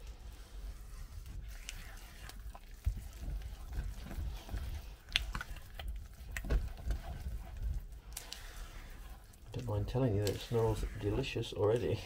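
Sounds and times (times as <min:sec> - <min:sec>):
spatula stirring sticky batter: 0:00.0 - 0:12.0.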